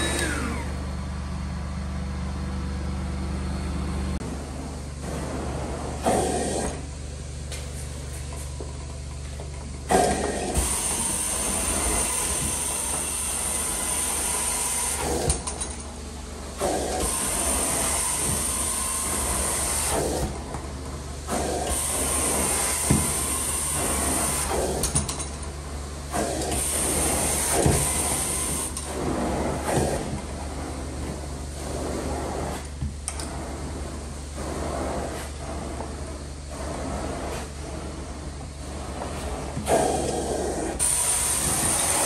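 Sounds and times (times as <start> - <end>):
vacuum droning: 0.0 - 23.1
carpet wand spraying and sucking: 26.2 - 42.0.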